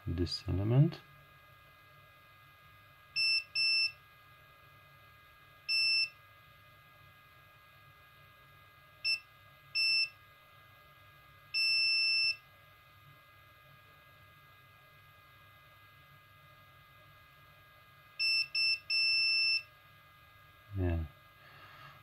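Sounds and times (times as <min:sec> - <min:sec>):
multimeter beeping: 0:03.2 - 0:04.0, 0:05.7 - 0:06.2, 0:09.0 - 0:10.2, 0:11.6 - 0:12.4, 0:18.2 - 0:19.7.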